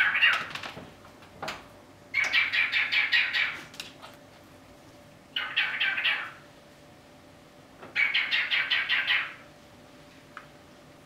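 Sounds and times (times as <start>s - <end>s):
cockatiel chirping and squawking: 0.0s - 0.5s, 2.2s - 3.7s, 5.4s - 6.4s, 8.0s - 9.4s.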